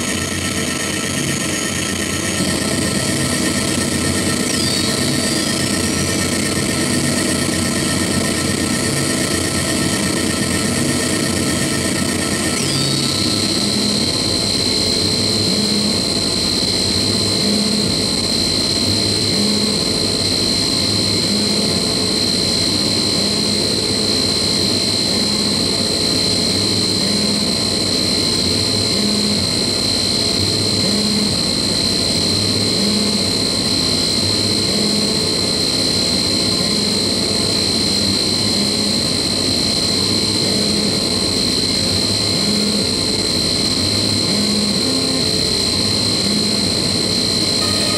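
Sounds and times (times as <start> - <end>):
harsh noise electronic music: 47.6 - 47.9.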